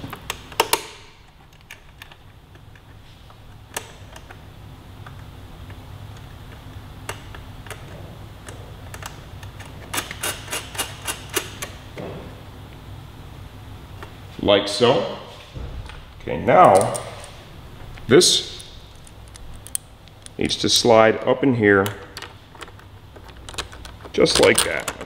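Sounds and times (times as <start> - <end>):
small metal parts clicking: 18.6 - 20.4, 22.1 - 25.0.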